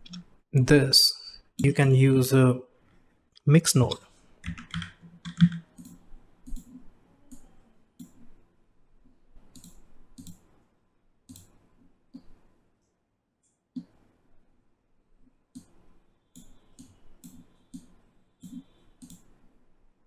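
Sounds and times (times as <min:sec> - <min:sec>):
computer mouse clicking: 0:04.4 - 0:08.2, 0:09.5 - 0:10.6, 0:11.3 - 0:12.4, 0:15.5 - 0:19.4.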